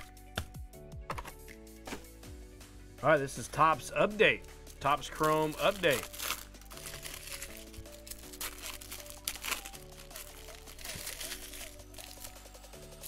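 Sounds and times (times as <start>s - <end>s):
background music of held chords: 0.0s - 13.0s
foil card pack crinkling: 4.8s - 12.5s.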